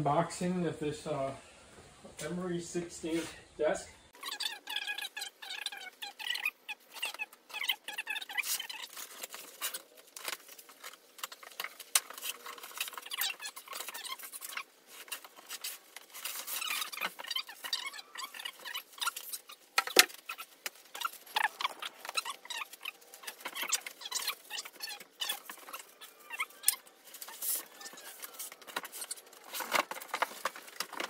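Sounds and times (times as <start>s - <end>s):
cardboard scraping and rustling: 7.9s - 31.0s.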